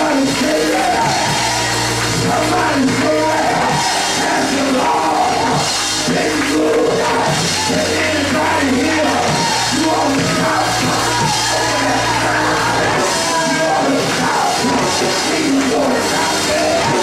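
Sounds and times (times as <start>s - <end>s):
low bass notes: 0.0s - 17.0s
voices singing: 0.0s - 17.0s.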